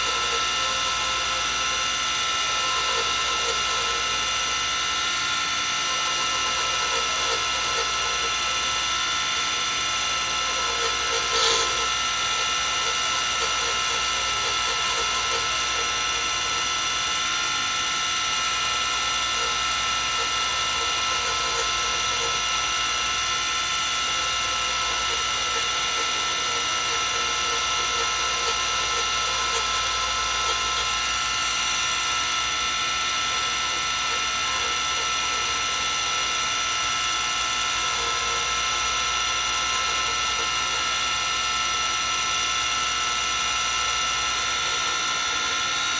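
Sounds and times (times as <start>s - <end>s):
turning tool cutting wood: 0.0s - 45.9s
wood lathe whining: 0.0s - 45.9s.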